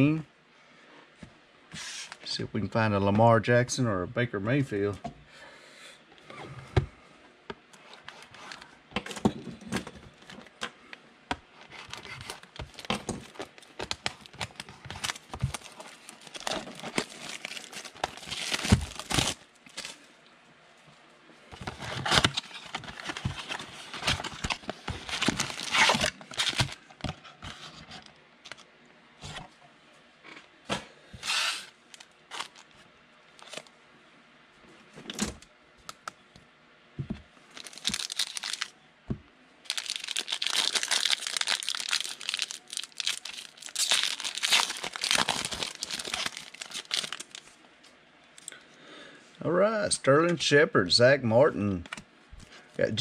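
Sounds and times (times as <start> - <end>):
foil packs crinkling and tearing: 11.7 - 20.0, 21.6 - 26.9, 31.2 - 32.7, 37.5 - 38.7, 39.6 - 47.5.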